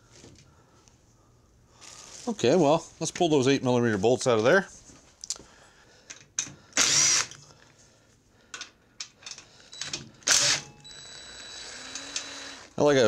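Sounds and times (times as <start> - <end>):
cordless drill spinning bolts: 6.8 - 7.4, 9.7 - 12.8
metallic clicks of tool and bolts: 8.5 - 10.1.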